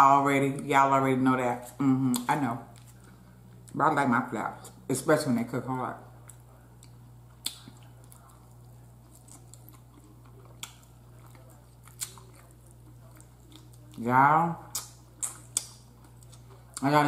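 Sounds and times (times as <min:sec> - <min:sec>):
faint chewing: 0:01.6 - 0:03.8, 0:06.2 - 0:14.0, 0:14.6 - 0:16.9.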